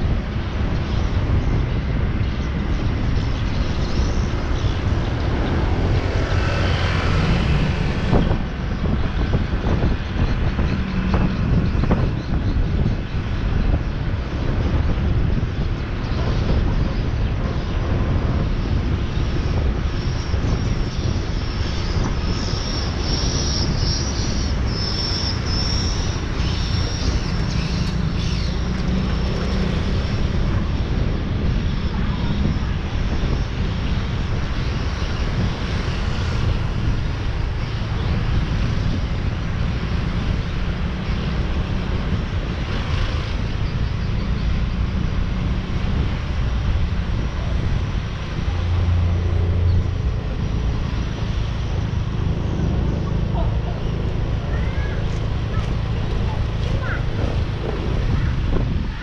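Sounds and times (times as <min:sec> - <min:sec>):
wind noise on microphone: 0:00.0 - 0:59.0
motorcycle engine running: 0:19.1 - 0:59.0.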